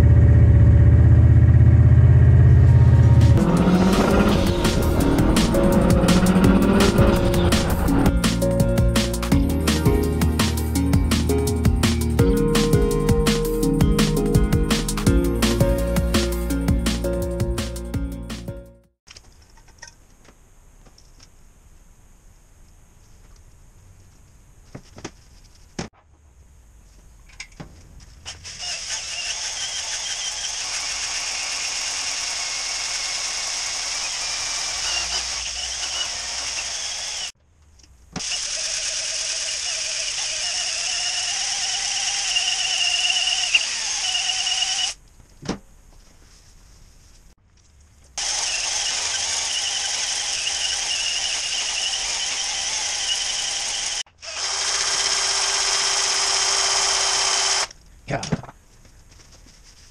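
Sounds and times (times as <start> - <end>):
cordless drill high-pitched whir: 28.4 - 37.4, 38.2 - 45.0, 48.2 - 57.7.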